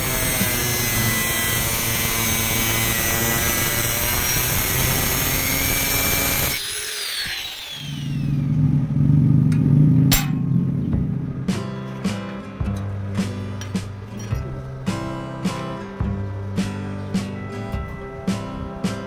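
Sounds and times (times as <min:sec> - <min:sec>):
angle grinder cutting steel: 0:00.0 - 0:08.6
grinder disc winding down: 0:00.0 - 0:11.3.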